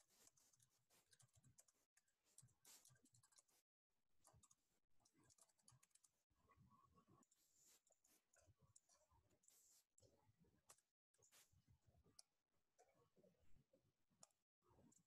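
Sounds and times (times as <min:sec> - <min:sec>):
faint keyboard typing: 0:00.0 - 0:03.6, 0:04.2 - 0:11.5.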